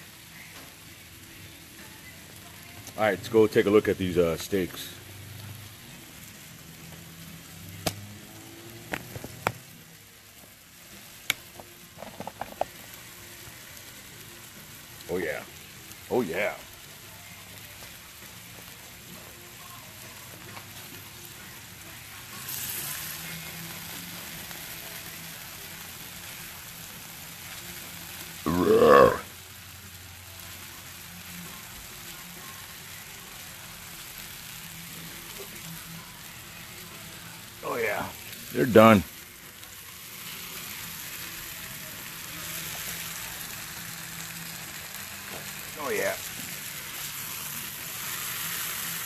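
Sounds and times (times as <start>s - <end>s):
steaks sizzling on a griddle: 0.0s - 49.0s
steak flipped onto hot metal: 7.8s - 8.1s, 8.9s - 9.7s, 11.3s - 12.8s.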